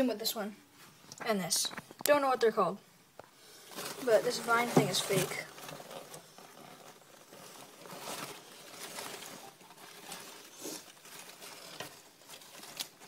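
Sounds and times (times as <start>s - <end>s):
rustling of leafy plants: 3.4s - 13.0s.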